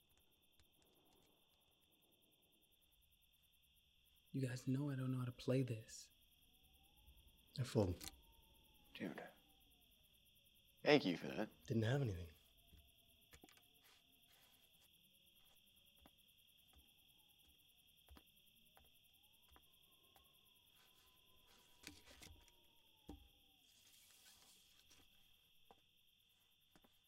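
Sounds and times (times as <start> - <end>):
crickets chirping: 0.0 - 27.0.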